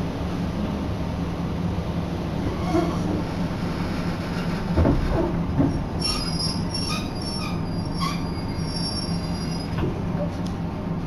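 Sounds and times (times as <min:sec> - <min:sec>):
train running hum: 0:00.0 - 0:11.0
train brakes squealing: 0:05.8 - 0:09.8.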